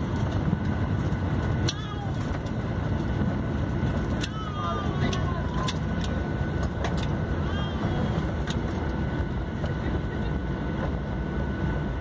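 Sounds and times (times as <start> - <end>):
jet engines rumbling: 0.0 - 12.0
wheels running on runway: 0.0 - 12.0.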